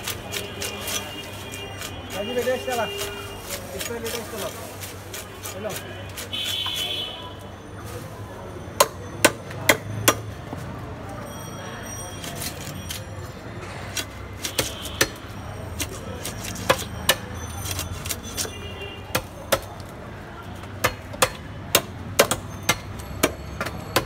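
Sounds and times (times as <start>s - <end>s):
market background: 0.0s - 24.0s
knife chopping fish: 13.9s - 15.2s, 15.8s - 18.5s.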